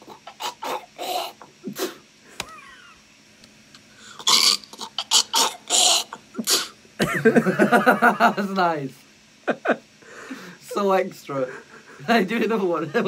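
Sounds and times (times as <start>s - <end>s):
man making spitting sounds: 4.2s - 6.8s.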